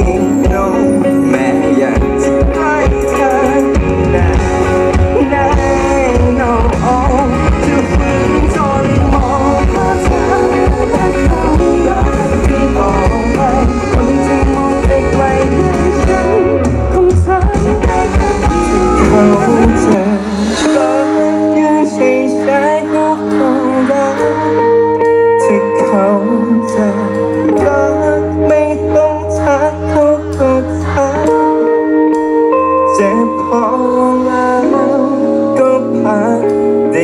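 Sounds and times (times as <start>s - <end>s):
live pop-rock band playing: 0.0s - 37.0s
man singing: 0.0s - 37.0s
saxophone: 6.9s - 22.9s.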